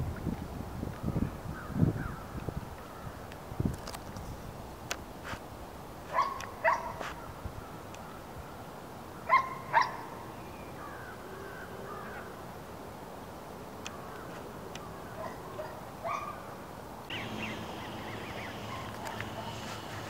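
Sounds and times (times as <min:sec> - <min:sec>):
steady outdoor hiss: 0:00.0 - 0:20.0
faint bird chirps: 0:17.1 - 0:20.0
loud animal calls: 0:17.1 - 0:20.0.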